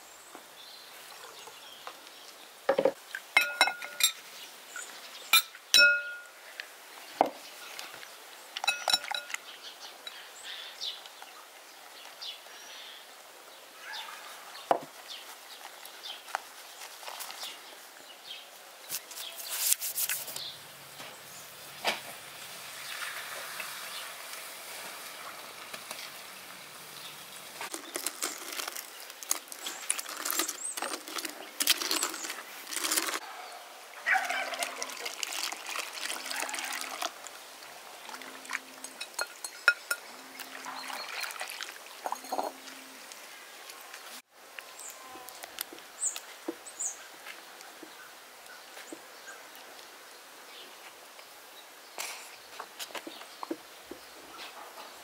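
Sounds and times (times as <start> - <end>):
birds chirping: 0.0 - 6.4, 7.0 - 19.6, 38.0 - 45.1
milk pouring into metal pot: 34.5 - 37.2.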